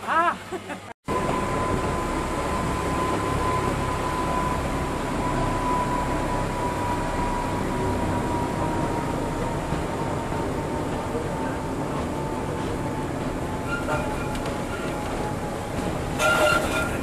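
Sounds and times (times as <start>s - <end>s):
rack railway train running: 1.0s - 17.0s.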